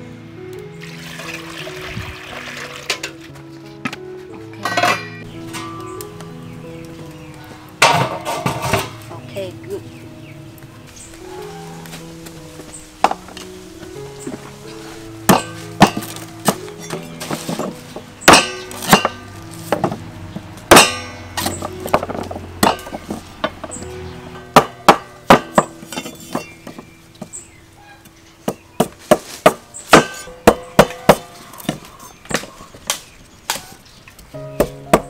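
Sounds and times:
background music: 0:00.0 - 0:35.0
cleaver chopping on wooden board: 0:18.3 - 0:19.2, 0:28.5 - 0:33.7.

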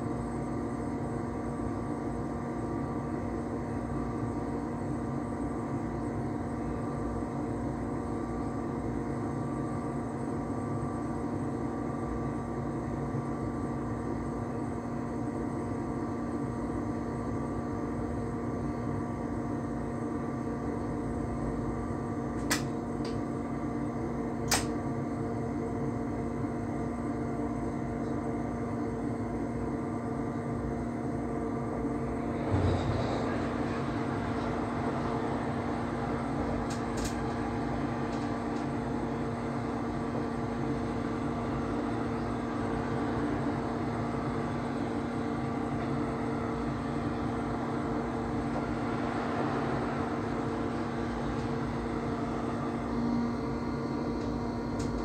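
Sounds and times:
electric train cab hum and rumble: 0:00.0 - 0:55.0.

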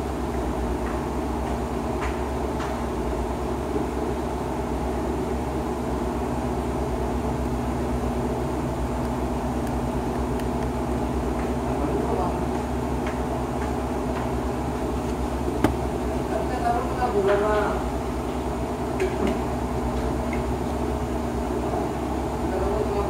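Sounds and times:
machine hum: 0:03.2 - 0:18.9.

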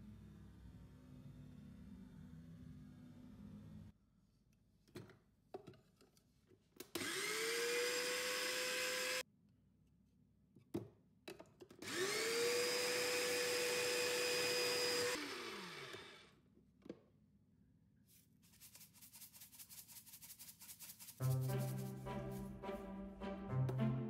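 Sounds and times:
electric grater motor whining: 0:07.0 - 0:09.2, 0:11.8 - 0:16.3.

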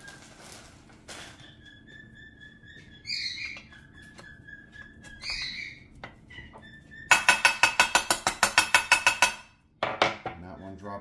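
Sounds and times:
rapid metallic hammer taps: 0:07.1 - 0:09.4.

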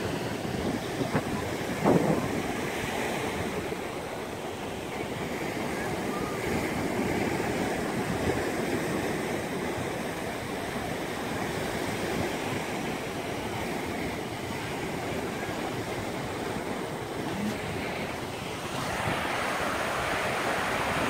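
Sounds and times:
surf breaking on shore: 0:00.0 - 0:21.0
wind rumbling on microphone: 0:00.0 - 0:21.0.

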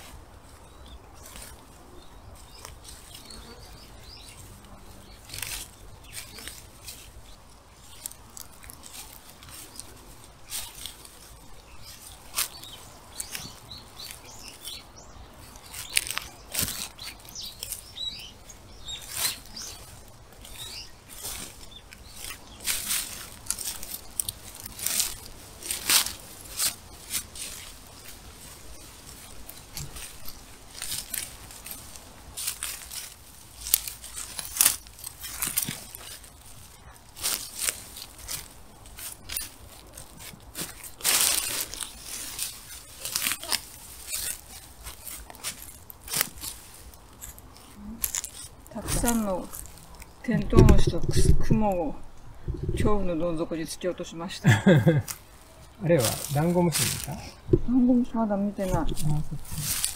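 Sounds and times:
grass stalks being snipped: 0:15.4 - 0:18.0, 0:19.0 - 0:50.2, 0:58.6 - 0:59.9.

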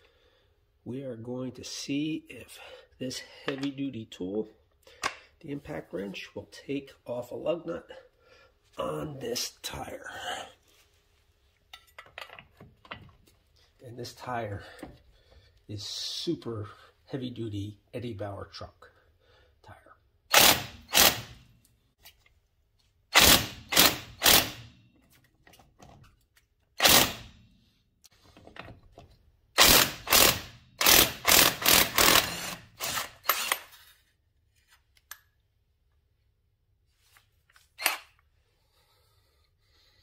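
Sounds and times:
impact wrench hammering: 0:23.2 - 0:24.6, 0:29.6 - 0:33.7.

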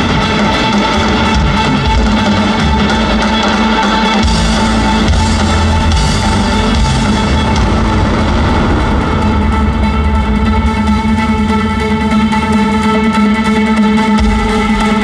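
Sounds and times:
orchestra and band playing film music: 0:00.0 - 0:15.0.

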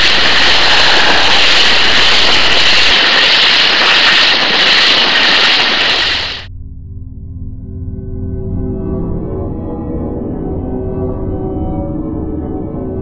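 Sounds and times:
loud steady hiss: 0:00.0 - 0:06.5.

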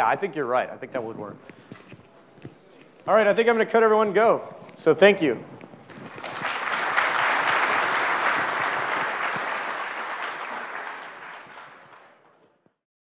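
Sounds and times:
audience applauding: 0:05.9 - 0:12.6.

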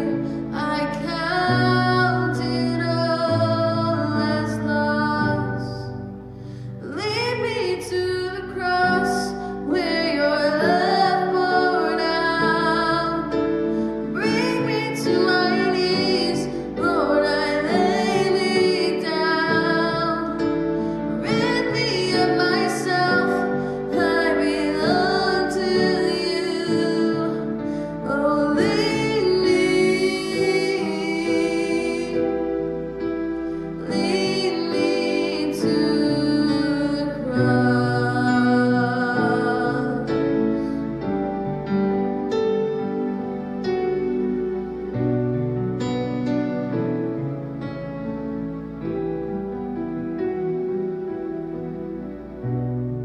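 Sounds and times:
woman singing: 0:00.0 - 0:05.9, 0:06.8 - 0:32.6, 0:33.8 - 0:40.4
instrumental accompaniment: 0:00.0 - 0:53.0.

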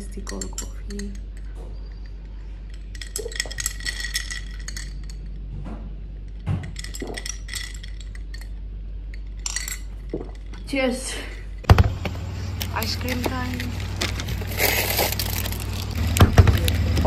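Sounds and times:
ice cubes clinking in glass: 0:02.9 - 0:05.2, 0:06.6 - 0:08.5.

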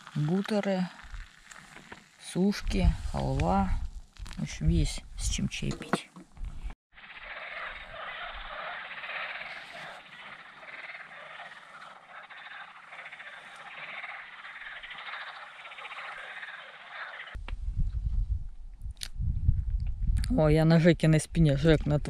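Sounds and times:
frogs croaking in chorus: 0:07.0 - 0:17.4.

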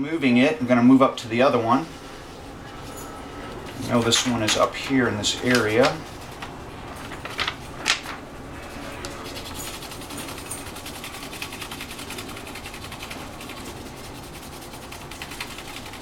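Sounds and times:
pencil shading on paper: 0:09.4 - 0:16.0.

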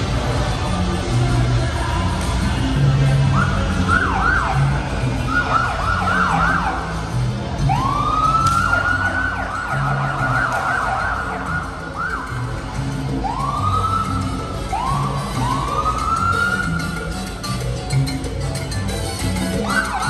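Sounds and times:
emergency vehicle siren: 0:03.1 - 0:17.1, 0:19.5 - 0:20.0.

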